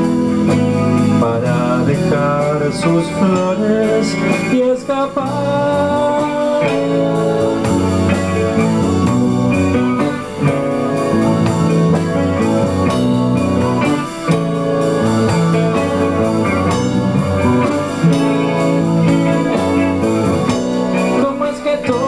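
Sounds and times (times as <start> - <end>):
drum kit: 0.0 - 22.0
electric guitar: 0.0 - 22.0.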